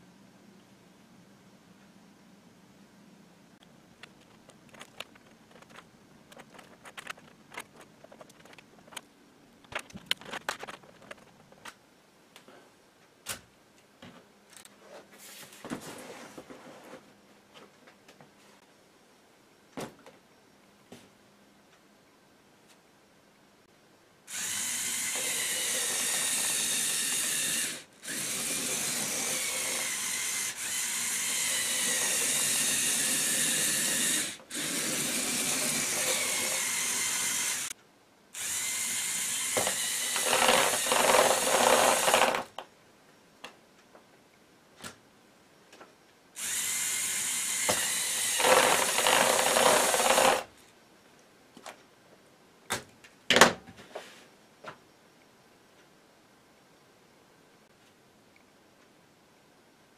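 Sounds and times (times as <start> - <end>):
electric motors whining: 24.3 - 37.7, 38.4 - 42.4, 46.4 - 50.5.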